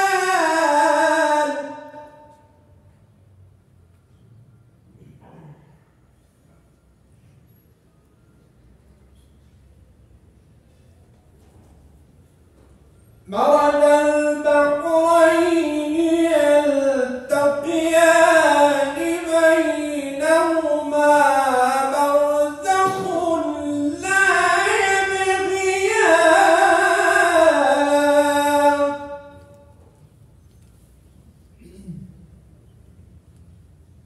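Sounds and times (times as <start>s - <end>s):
man chanting recitation: 0.0s - 2.5s, 13.2s - 29.8s.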